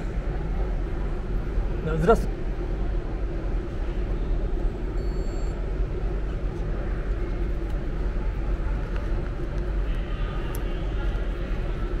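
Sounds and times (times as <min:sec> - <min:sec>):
low rumble and hum: 0:00.0 - 0:12.0
faint electronic beep: 0:04.9 - 0:05.6.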